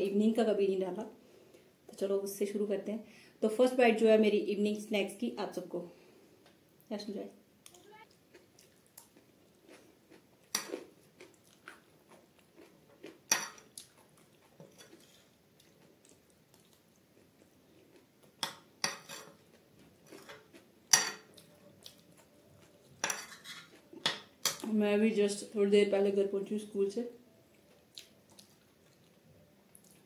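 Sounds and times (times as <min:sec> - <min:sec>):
chewing and mouth sounds: 0:07.6 - 0:18.4, 0:21.3 - 0:24.0, 0:27.5 - 0:30.0.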